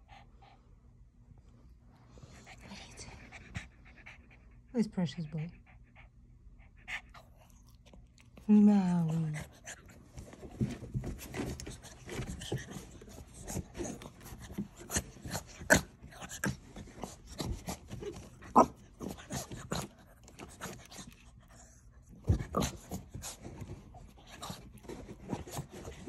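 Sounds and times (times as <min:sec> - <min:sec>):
puppy breathing: 0:02.0 - 0:08.3.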